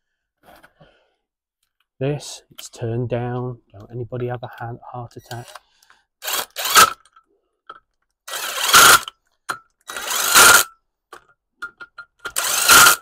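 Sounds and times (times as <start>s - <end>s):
impact wrench hammering: 8.3s - 10.7s, 11.6s - 13.0s.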